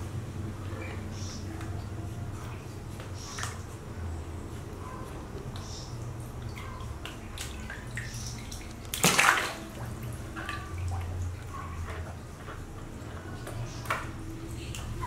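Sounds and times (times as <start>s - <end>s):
water splashing in a basin: 6.0s - 15.0s.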